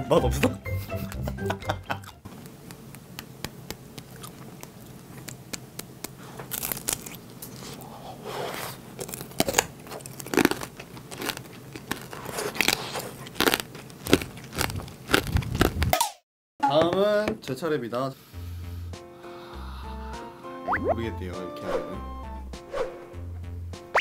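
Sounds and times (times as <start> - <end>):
crunchy candy chewing: 1.9 - 15.9.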